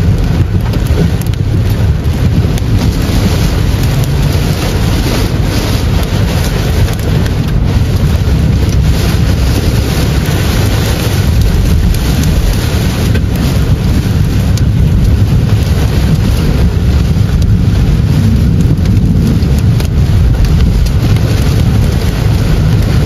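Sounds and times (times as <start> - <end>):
heavy rain on car roof: 0.0 - 23.0
tyres rumbling on wet road: 0.0 - 23.0.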